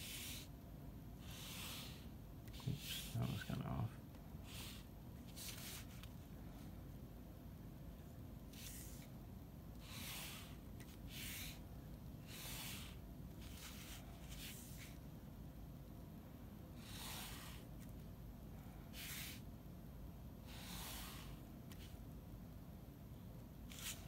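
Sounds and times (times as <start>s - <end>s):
pen scratching on paper: 0.0s - 0.5s, 1.2s - 3.2s, 4.5s - 6.1s, 8.5s - 9.1s, 9.8s - 11.6s, 12.2s - 15.0s, 16.8s - 17.8s, 18.9s - 19.4s, 20.4s - 22.0s, 23.7s - 24.0s.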